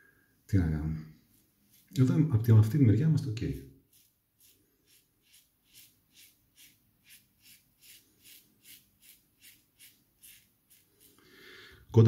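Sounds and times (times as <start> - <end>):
razor scraping stubble: 3.9 - 11.2.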